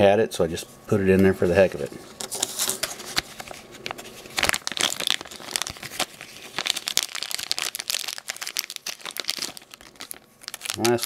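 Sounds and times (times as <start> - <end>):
plastic bag crinkling: 2.2 - 11.0.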